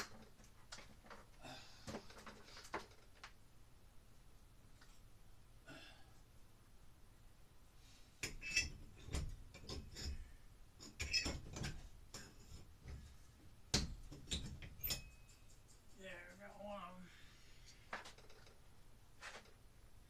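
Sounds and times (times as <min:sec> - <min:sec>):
hammer clinking on metal bracket: 0:14.4 - 0:15.8.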